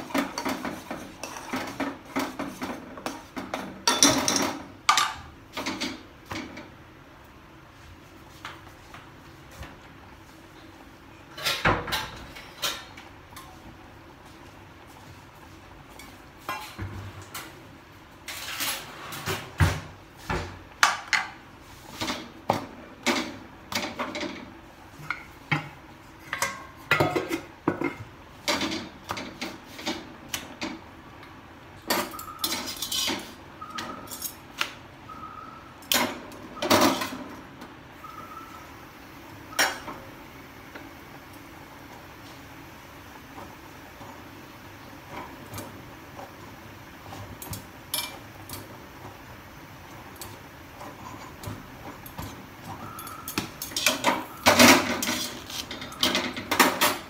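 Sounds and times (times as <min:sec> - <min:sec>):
utensils and dishes clattering: 0:00.0 - 0:06.7, 0:11.3 - 0:13.6, 0:20.8 - 0:30.8, 0:31.8 - 0:34.5, 0:35.9 - 0:37.4, 0:47.1 - 0:48.8, 0:50.0 - 0:57.0.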